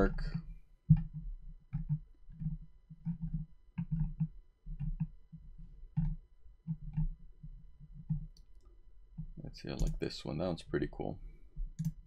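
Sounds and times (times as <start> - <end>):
computer mouse clicks: 0.9 - 10.1, 11.7 - 12.0.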